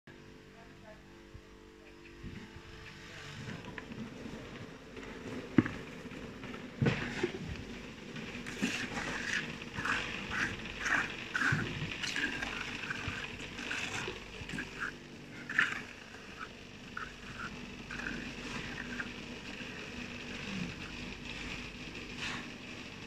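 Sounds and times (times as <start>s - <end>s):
outdoor background noise: 0.1s - 23.0s
trowel scraping wet concrete: 6.8s - 22.6s.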